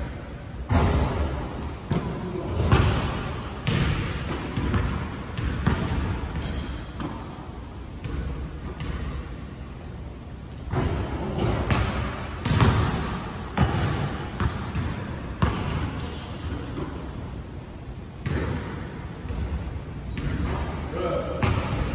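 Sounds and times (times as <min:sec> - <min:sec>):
sneakers squeaking on hardwood: 0:01.6 - 0:03.8, 0:05.3 - 0:07.8, 0:10.5 - 0:11.7, 0:14.7 - 0:18.3, 0:19.3 - 0:20.8
basketball bouncing on hardwood: 0:11.4 - 0:13.0.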